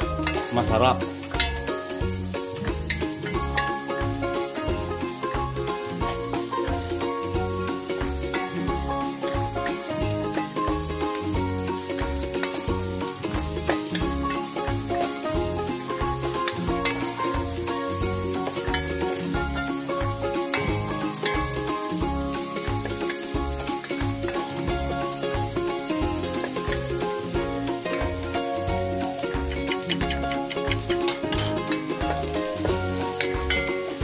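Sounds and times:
background music with beat: 0:00.0 - 0:34.0
onions sizzling in oil: 0:00.0 - 0:34.0
wooden spoon stirring: 0:29.4 - 0:31.2.

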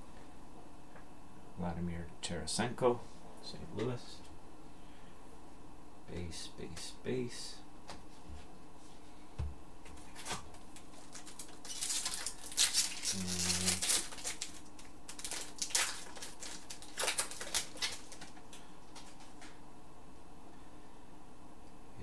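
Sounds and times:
cards shuffling: 0:09.9 - 0:19.5
wrapper tearing and crinkling: 0:10.1 - 0:19.5.

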